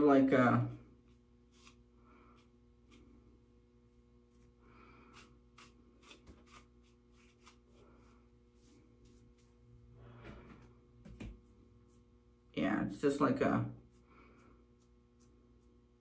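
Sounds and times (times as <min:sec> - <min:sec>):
comb scratching through wig: 0:01.0 - 0:03.2, 0:03.8 - 0:09.6, 0:13.8 - 0:16.0.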